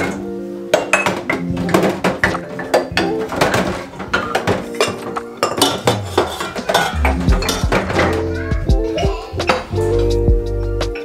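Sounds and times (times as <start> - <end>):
ceramic mugs clinking in sink: 0.0 - 8.3.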